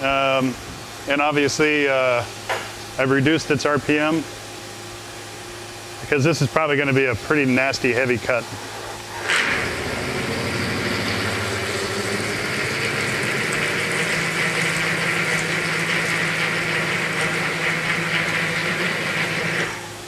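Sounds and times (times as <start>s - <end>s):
low machine hum: 0.0s - 20.0s
drill cutting steel: 9.2s - 19.9s.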